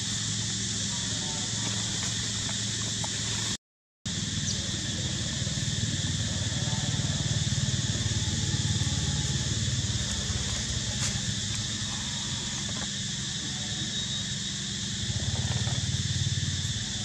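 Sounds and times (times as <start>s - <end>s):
high even hiss: 0.0s - 17.0s
low drone: 4.1s - 17.0s.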